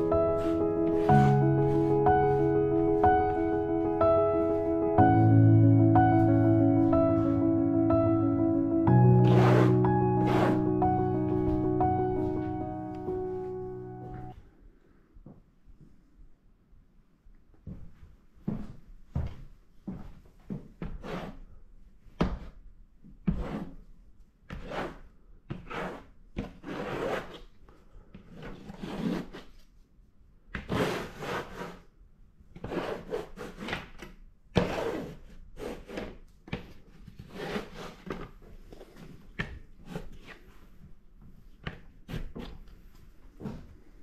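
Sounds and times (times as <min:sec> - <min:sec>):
tools rubbing and scraping paper: 0:09.2 - 0:10.7, 0:37.2 - 0:38.2.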